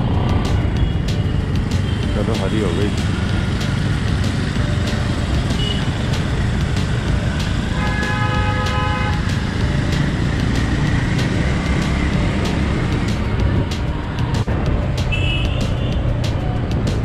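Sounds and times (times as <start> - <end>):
scooter engine and road rumble: 0.0 - 17.0
vehicle horn: 5.6 - 5.9, 7.7 - 9.3, 15.1 - 16.0.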